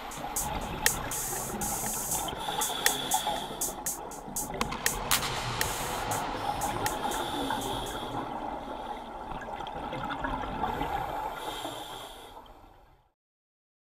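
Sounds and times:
scuba regulator breathing bubbles: 0:00.0 - 0:09.2, 0:10.6 - 0:12.4.

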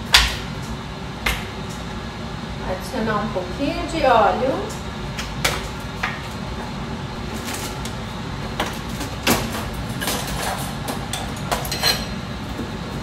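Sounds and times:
steady low hum: 0:00.0 - 0:13.0.

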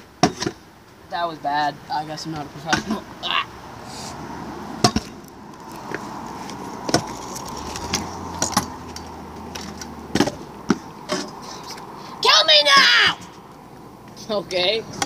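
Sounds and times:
kick scooter rolling on concrete: 0:04.8 - 0:11.9.

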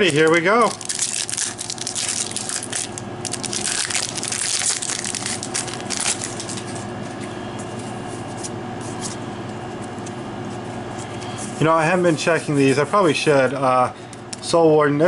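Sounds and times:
foil wrapper tearing and crinkling: 0:00.0 - 0:06.9
cards rustling: 0:00.1 - 0:09.2.

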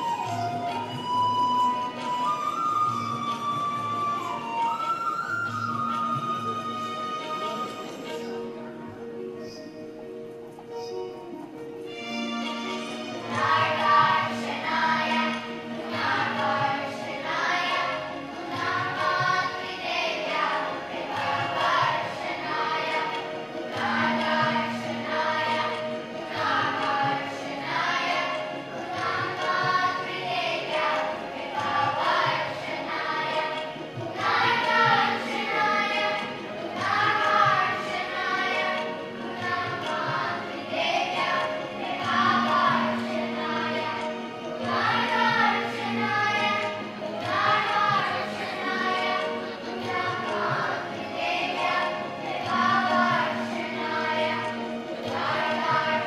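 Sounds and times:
children's choir singing: 0:00.0 - 0:09.6, 0:12.3 - 0:56.0.

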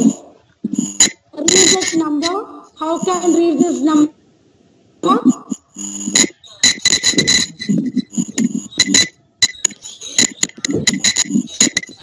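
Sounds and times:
microphone crackles and clicks: 0:00.0 - 0:02.3, 0:05.5 - 0:12.0
high ringing tones: 0:00.0 - 0:03.9, 0:05.3 - 0:12.0
person talking over video call: 0:01.3 - 0:04.1.

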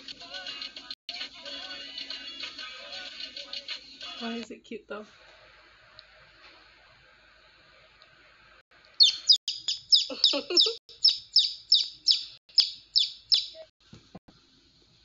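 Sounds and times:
baby chick peeping: 0:09.0 - 0:13.7.

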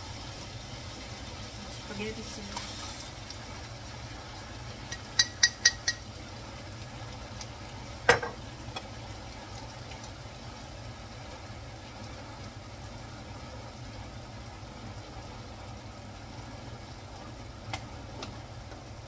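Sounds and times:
pans hissing on a stove: 0:00.0 - 0:19.0
jar knocking against a pan: 0:04.9 - 0:06.0.

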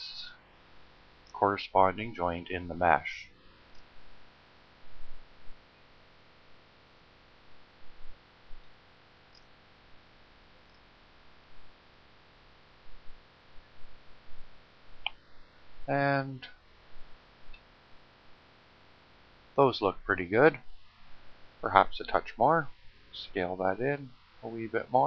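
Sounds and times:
microphone hiss and hum: 0:00.0 - 0:25.0.

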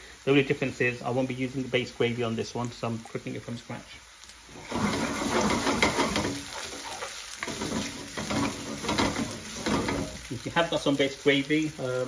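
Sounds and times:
onions sizzling in hot oil: 0:00.0 - 0:12.0
spatula scraping frying pan: 0:04.5 - 0:10.4.

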